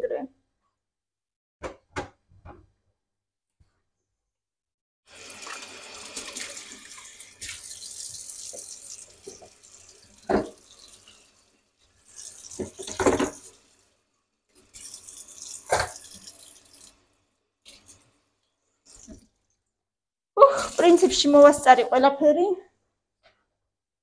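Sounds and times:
dishes clinking against sink: 0:10.3 - 0:10.6, 0:12.6 - 0:13.5
tap running into steel sink: 0:12.5 - 0:13.5.

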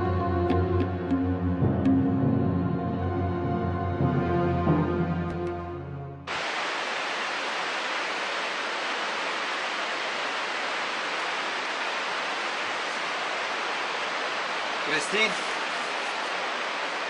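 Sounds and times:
music: 0:00.0 - 0:06.3
steady rushing outdoor noise: 0:06.3 - 0:17.0.

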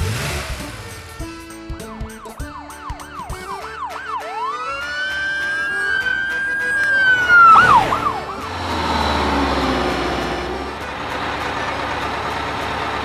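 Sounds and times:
bus engine rumbling: 0:00.0 - 0:13.0
police siren yelping and wailing: 0:01.9 - 0:09.8.

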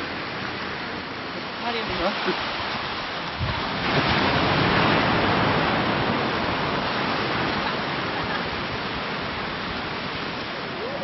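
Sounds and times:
wind blowing across microphone: 0:00.0 - 0:11.0.

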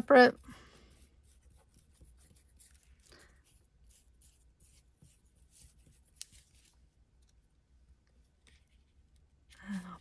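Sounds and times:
glue brush swishing on paper: 0:00.3 - 0:06.8.

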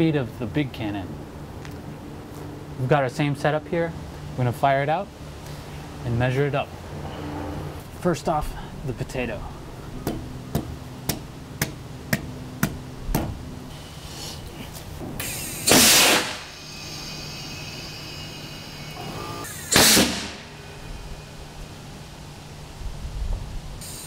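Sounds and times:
air cannon blast: 0:15.2 - 0:16.7, 0:19.5 - 0:20.5.

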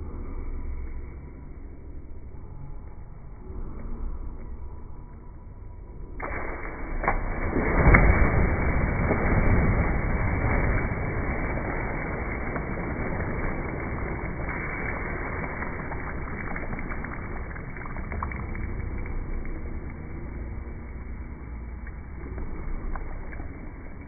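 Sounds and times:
slowed water splashing: 0:05.9 - 0:24.0.

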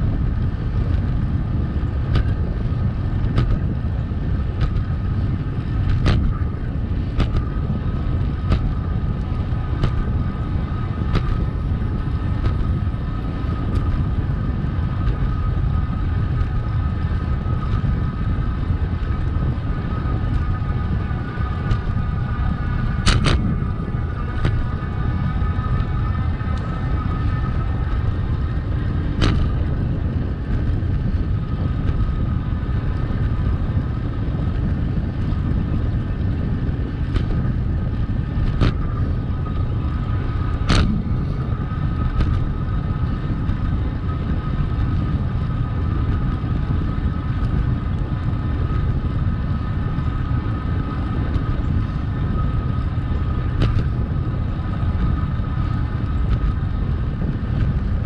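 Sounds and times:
steady whine: 0:00.0 - 0:58.0
wind buffeting microphone: 0:00.0 - 0:58.0.

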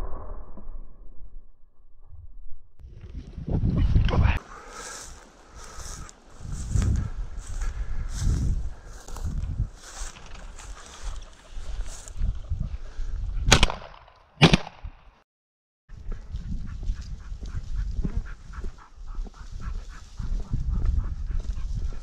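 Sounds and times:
dry grass swishing underfoot: 0:04.6 - 0:12.3
footsteps and rustling: 0:04.6 - 0:12.3
shotgun shots with echo: 0:13.5 - 0:14.8.

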